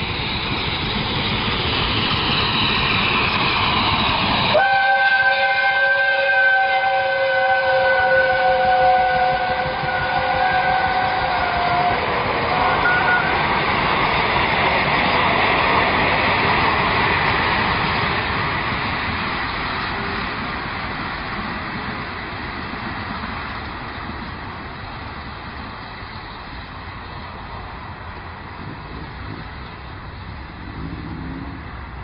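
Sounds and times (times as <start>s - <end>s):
steam train running past: 0.0s - 32.0s
train whistle: 4.5s - 13.6s.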